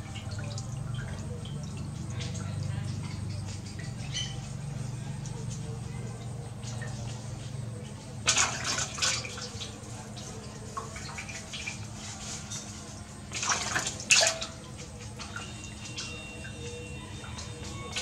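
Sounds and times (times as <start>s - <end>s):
water splashing in metal basin: 0.0s - 18.0s.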